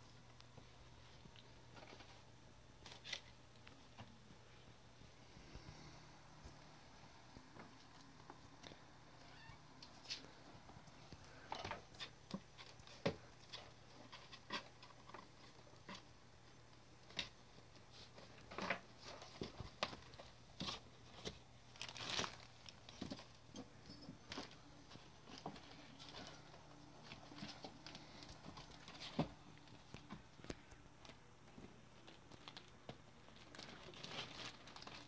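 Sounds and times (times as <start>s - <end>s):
kittens pattering and scratching: 0.0s - 35.0s
plastic bag crinkling: 21.2s - 23.3s, 25.2s - 35.0s.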